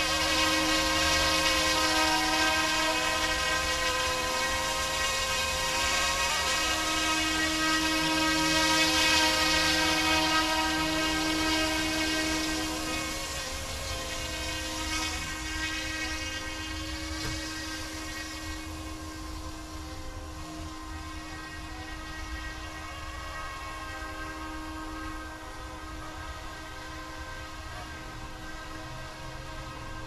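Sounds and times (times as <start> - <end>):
toy helicopter rotor whine: 0.0 - 30.0.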